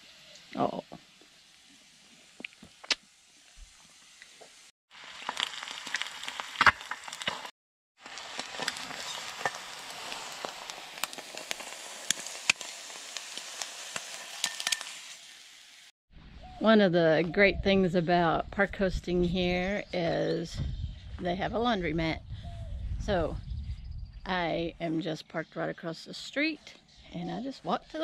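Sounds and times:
egg sizzling in a skillet: 0.0 - 15.9
crackles and pops: 0.3 - 15.2.

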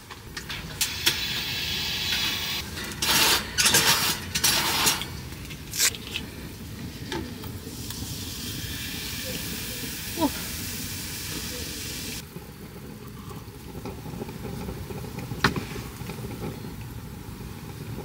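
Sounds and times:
heater hissing: 0.4 - 12.3
noisy bursts: 0.5 - 6.6.

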